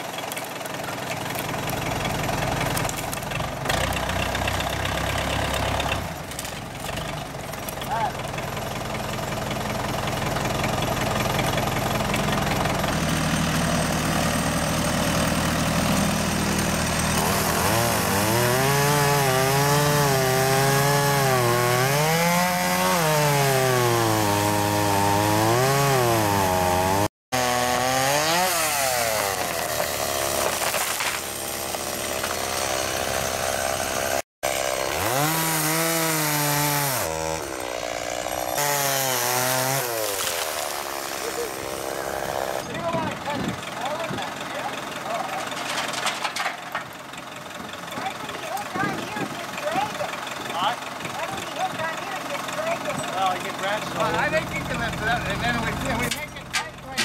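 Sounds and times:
chainsaw cutting wood: 0.0 - 46.9, 47.9 - 57.0
engine running steadily: 42.6 - 57.0.

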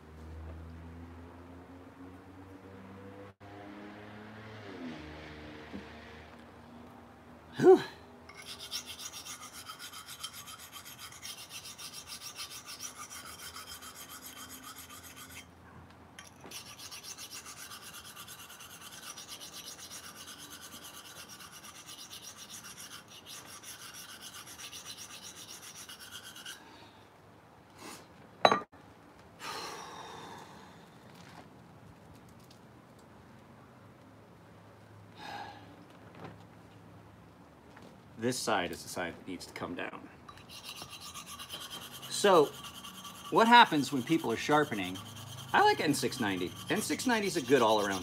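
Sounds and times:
knife rasping on sharpening stone: 8.3 - 15.5, 16.2 - 26.6, 40.3 - 48.0
blade wiped on rag: 40.6 - 48.0.

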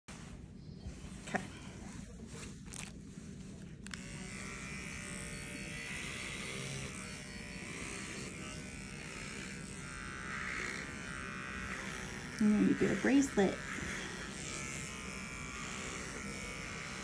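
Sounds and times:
animal hair clipper buzzing: 2.7 - 2.9, 3.8 - 17.0.

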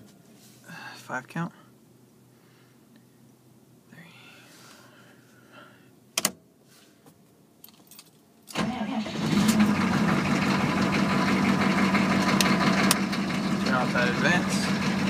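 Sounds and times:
diesel engine starting and idling: 8.5 - 15.0.

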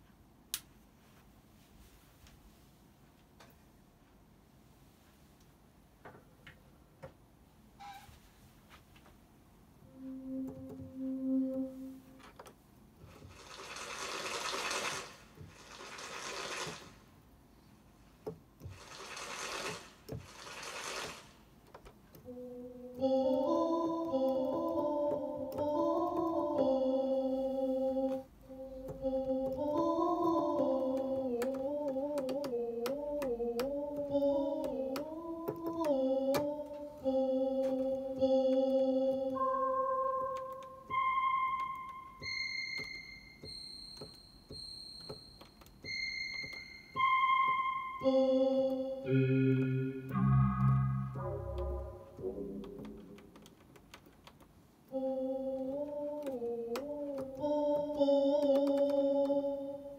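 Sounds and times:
pitch-bent synth notes: 9.8 - 12.2, 22.3 - 32.2, 32.8 - 44.1, 45.9 - 53.4
single high synth notes: 9.8 - 12.2, 38.8 - 45.1, 45.9 - 53.3
synth keyboard sustained chords: 9.8 - 12.3, 22.3 - 44.1, 45.8 - 53.5.

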